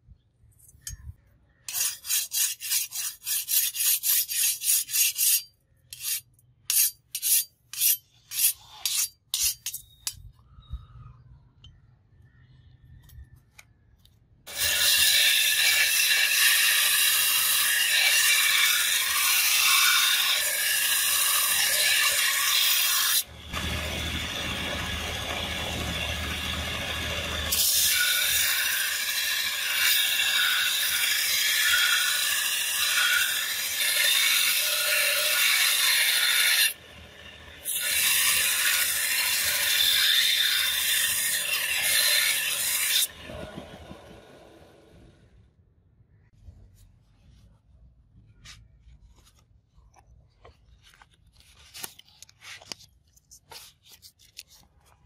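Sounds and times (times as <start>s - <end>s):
belt grinder grinding metal: 14.5s - 44.2s.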